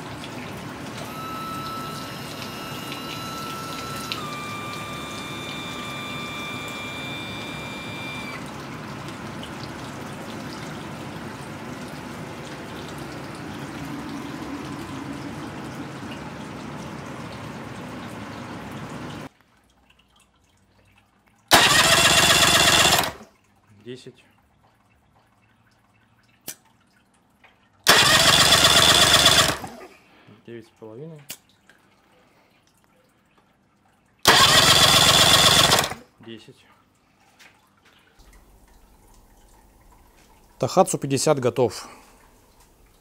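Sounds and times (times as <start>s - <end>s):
outboard engine running: 0.0s - 19.3s, 21.5s - 23.2s, 27.9s - 29.8s, 34.3s - 36.0s
cooling water splashing: 0.0s - 30.2s, 31.1s - 43.0s
engine cranked on starter: 0.8s - 8.5s, 21.5s - 23.3s, 27.9s - 29.9s, 34.2s - 36.1s.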